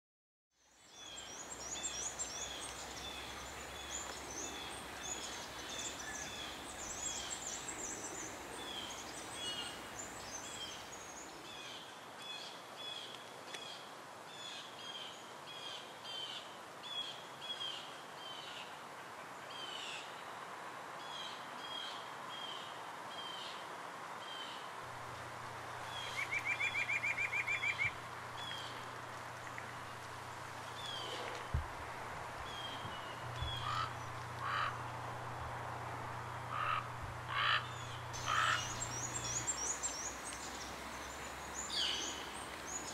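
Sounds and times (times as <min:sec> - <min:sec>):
songbirds chirping: 0:00.6 - 0:18.7, 0:24.2 - 0:31.7, 0:32.3 - 0:35.3, 0:35.9 - 0:42.9
background hiss: 0:00.6 - 0:42.9
bird trill: 0:37.4 - 0:40.7.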